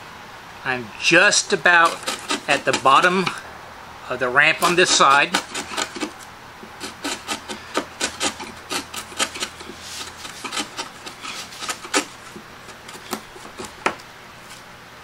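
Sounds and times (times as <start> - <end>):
chisel paring wood: 1.2 - 3.4, 4.5 - 14.1.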